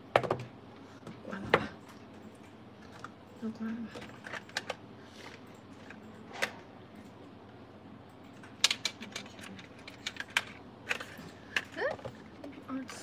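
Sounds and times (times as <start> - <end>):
small hard objects clicking on desk: 8.4 - 12.1.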